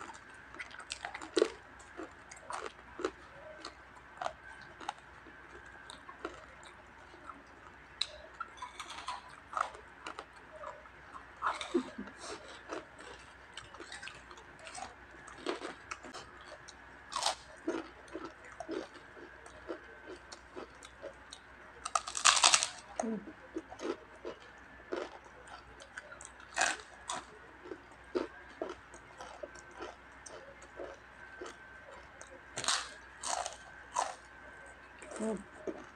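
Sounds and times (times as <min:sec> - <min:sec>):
crunching crispy chicken skin: 0:21.8 - 0:22.9, 0:23.8 - 0:31.5, 0:32.6 - 0:34.2.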